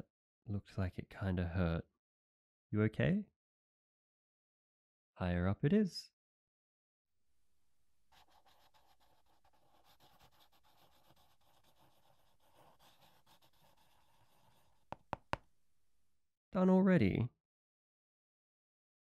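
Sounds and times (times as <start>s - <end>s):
pen scratching on paper: 8.1s - 15.4s
sharp taps: 14.9s - 15.5s.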